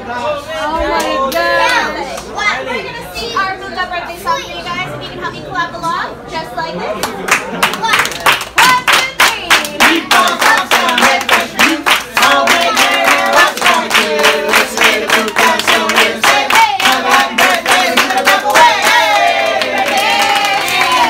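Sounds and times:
group of people singing: 0:09.7 - 0:21.0.

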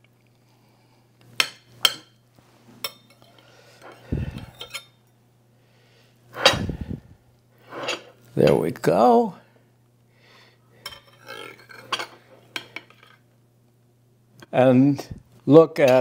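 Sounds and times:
knife scraping ceramic plate: 0:07.7 - 0:08.2, 0:10.9 - 0:13.1.

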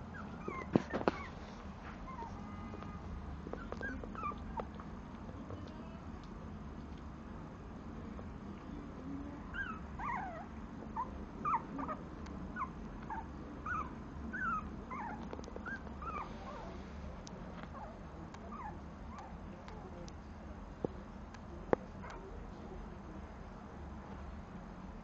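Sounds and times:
puppy whimpering: 0:00.1 - 0:01.4, 0:02.1 - 0:02.5, 0:03.5 - 0:04.7, 0:09.5 - 0:12.0, 0:12.6 - 0:16.8, 0:17.7 - 0:19.3.

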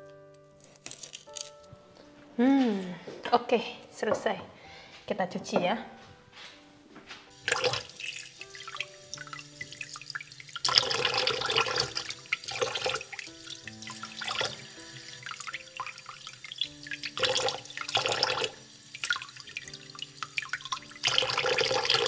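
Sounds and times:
soft background music: 0:00.0 - 0:22.0
tap water gushing: 0:07.3 - 0:22.0.

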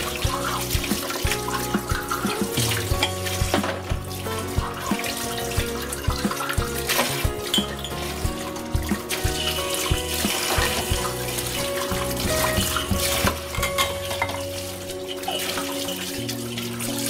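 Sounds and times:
soft background music: 0:00.0 - 0:17.0
tap water running into sink: 0:00.0 - 0:17.0
cups clinking: 0:07.1 - 0:16.1.

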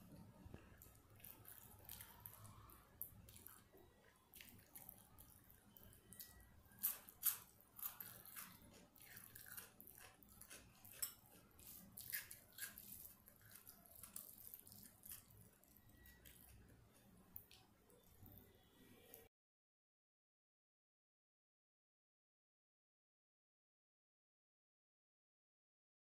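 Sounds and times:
fingers squishing sticky rice: 0:00.1 - 0:18.6.

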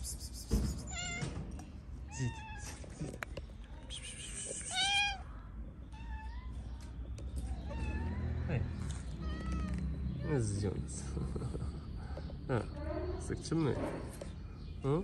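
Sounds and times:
cats meowing: 0:00.8 - 0:01.4, 0:02.1 - 0:03.0, 0:04.2 - 0:06.8, 0:07.4 - 0:10.8.

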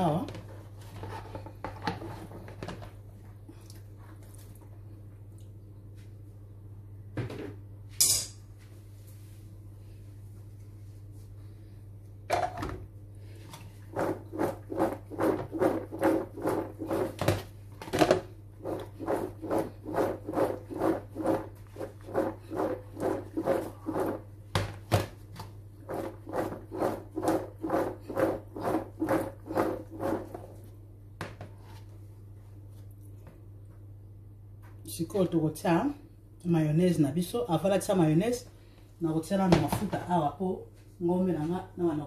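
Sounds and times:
pasta swishing in a bowl: 0:13.8 - 0:17.2, 0:18.6 - 0:24.4, 0:25.8 - 0:30.8.

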